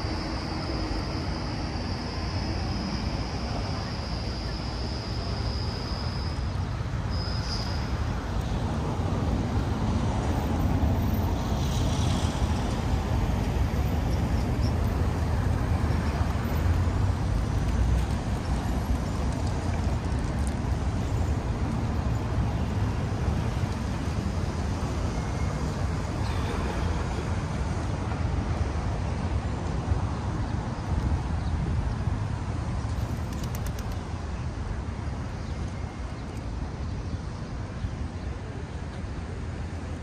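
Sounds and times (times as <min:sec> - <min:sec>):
high-pitched squeal: 0:00.0 - 0:08.1
traffic rumble: 0:00.0 - 0:40.0.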